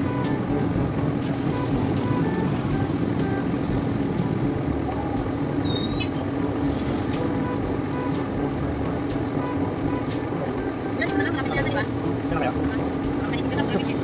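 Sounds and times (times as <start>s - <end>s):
road noise: 0.0s - 14.0s
vehicle engine running: 0.0s - 14.0s.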